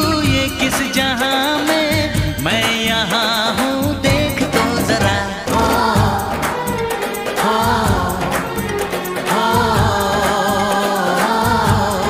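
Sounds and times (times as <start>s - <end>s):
percussion hits: 0.0s - 12.0s
sustained bass: 3.9s - 6.9s.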